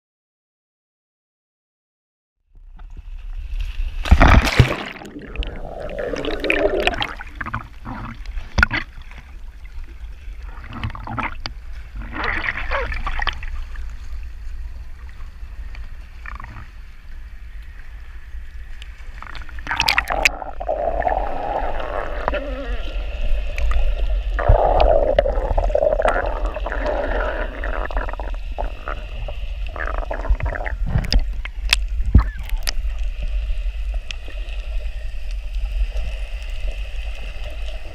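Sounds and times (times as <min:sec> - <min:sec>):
low rumble: 0:02.6 - 0:08.2
water gurgling and sloshing: 0:02.6 - 0:37.9
knocks and splashes: 0:03.9 - 0:09.3.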